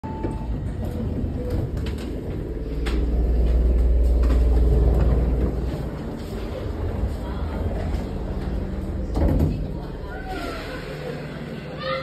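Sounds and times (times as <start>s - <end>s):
electric train low hum: 0.0s - 11.8s.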